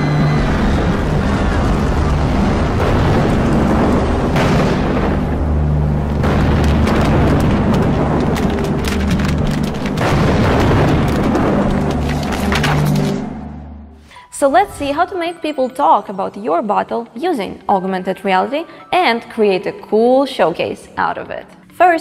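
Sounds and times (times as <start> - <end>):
rumbling booming effects: 0.0 - 15.0
dramatic music with low notes: 0.0 - 20.0
sharp cracks: 2.6 - 13.5.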